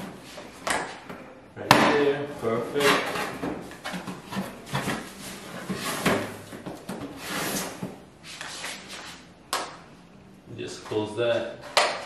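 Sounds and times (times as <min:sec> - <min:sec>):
cardboard scraping: 0:02.7 - 0:08.9.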